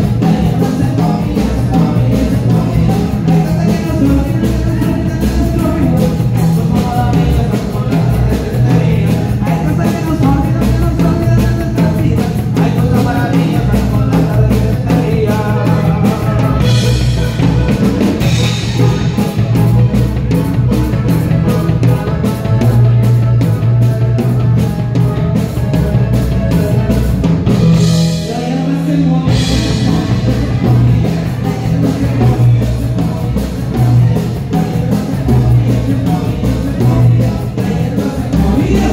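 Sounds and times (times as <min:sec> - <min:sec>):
bass line: 0:00.0 - 0:38.9
live dance band playing: 0:00.0 - 0:38.9
person singing: 0:00.0 - 0:38.9.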